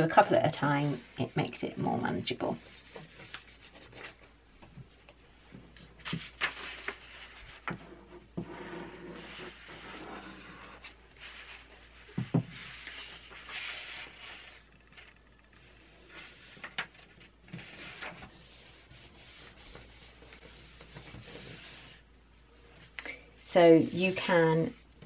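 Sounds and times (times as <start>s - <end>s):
paper rustling and sliding: 6.0s - 22.0s.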